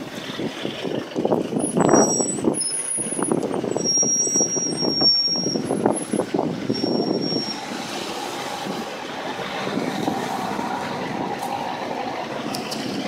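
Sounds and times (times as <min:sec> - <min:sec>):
city traffic going by: 0:00.0 - 0:13.0.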